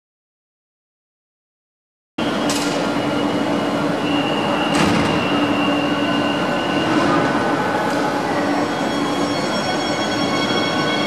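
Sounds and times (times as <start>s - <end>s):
train rumbling: 2.2s - 11.0s.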